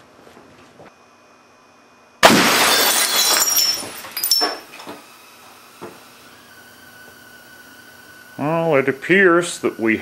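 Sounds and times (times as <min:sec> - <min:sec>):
glass shattering: 0:02.2 - 0:04.9
television tube crashing: 0:02.2 - 0:05.0.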